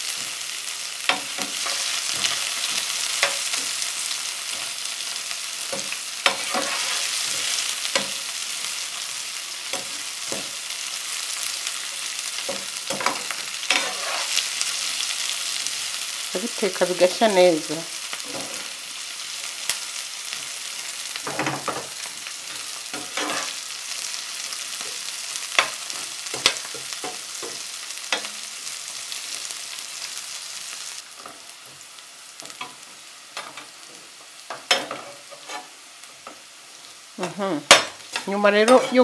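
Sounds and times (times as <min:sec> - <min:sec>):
vegetables sizzling in oil: 0:00.0 - 0:39.0
metal skimmer scraping a pan: 0:06.3 - 0:08.1, 0:12.9 - 0:14.4, 0:23.0 - 0:23.6, 0:34.7 - 0:35.7.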